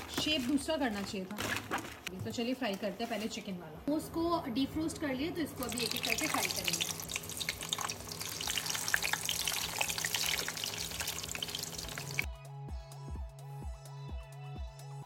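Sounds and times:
food frying in hot oil: 5.6 - 12.3.

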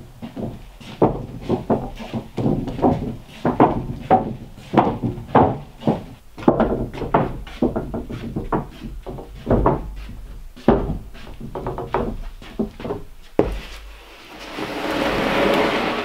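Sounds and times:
footsteps on wooden planks: 0.0 - 16.0
wooden sheets knocking: 0.4 - 14.0.

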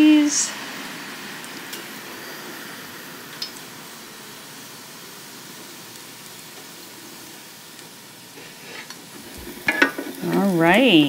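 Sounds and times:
ribs sizzling in air fryer: 0.0 - 11.0.

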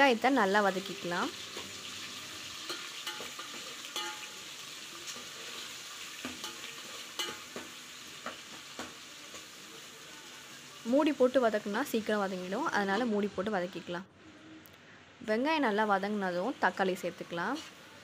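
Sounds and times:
onions sizzling in hot oil: 0.0 - 14.6, 15.2 - 18.0.

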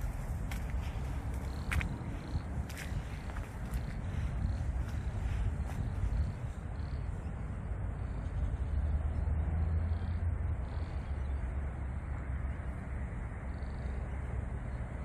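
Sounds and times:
faint bird calls: 0.0 - 14.8
steady low rumble: 0.0 - 15.0.

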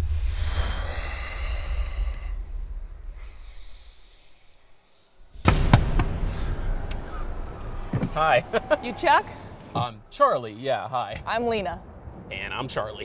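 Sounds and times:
low rumble: 0.0 - 10.1.

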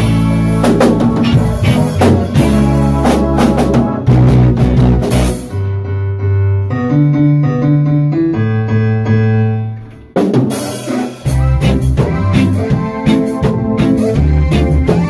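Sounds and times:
drum kit: 0.0 - 5.9, 9.8 - 15.0
reggae band playing: 0.0 - 5.9, 9.8 - 15.0
held bass notes: 0.0 - 15.0
sustained keyboard chords: 0.0 - 15.0.

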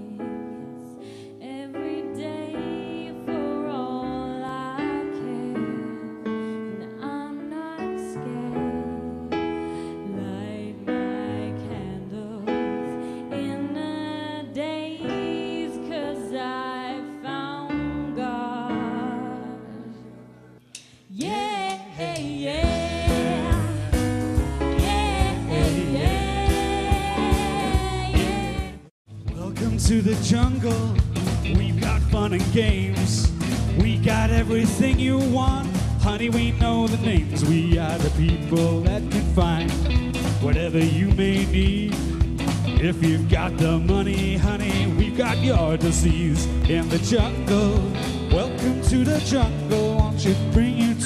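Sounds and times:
up-tempo band with drum kit: 20.7 - 51.0
woman singing with jazz band: 21.1 - 28.9.

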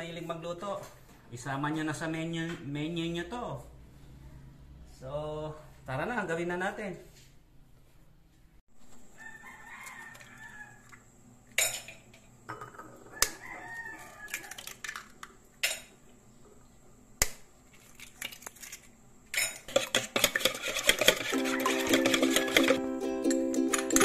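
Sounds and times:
whisk beating eggs: 19.7 - 22.8.

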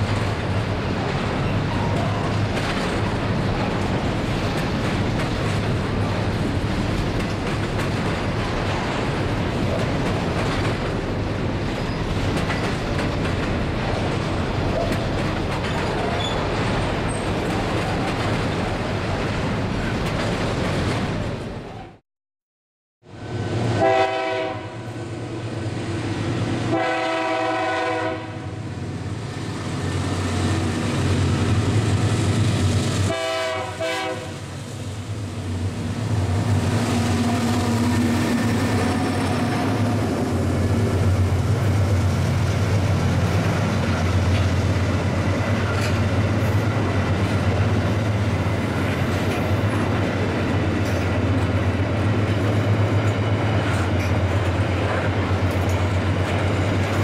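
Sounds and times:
train wheels clattering on rails: 0.0 - 21.6, 29.6 - 57.0
locomotive horn blasts: 23.7 - 25.0, 26.6 - 28.6, 33.0 - 34.5.

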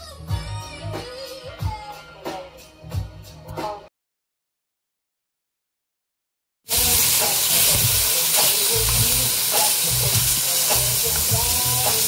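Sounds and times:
bacon sizzling in a pot: 6.7 - 12.0.

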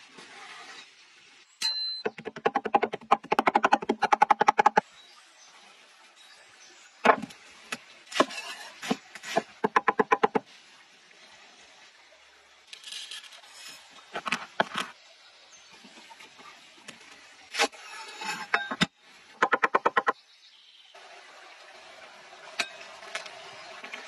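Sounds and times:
knocks on wooden board: 2.1 - 4.8, 9.6 - 10.4, 19.4 - 20.1.

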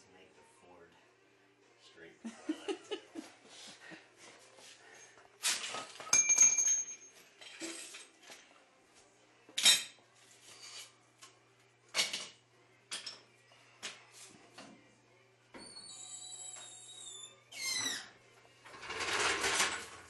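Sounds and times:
metal tools clattering on concrete: 5.0 - 8.4.

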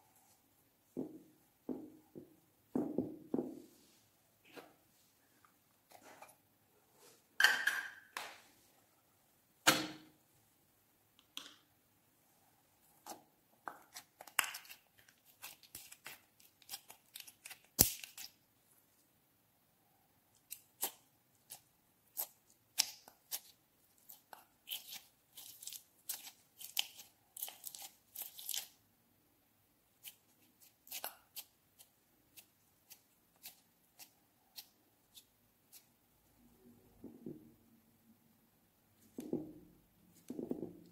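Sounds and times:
slime crackling and popping: 15.4 - 18.3.

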